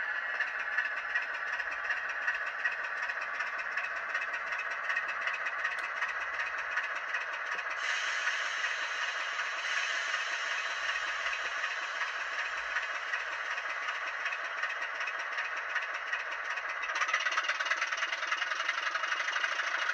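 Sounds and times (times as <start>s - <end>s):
thin rattling diesel engine sound: 0.0s - 19.9s
bright hiss: 7.8s - 14.5s.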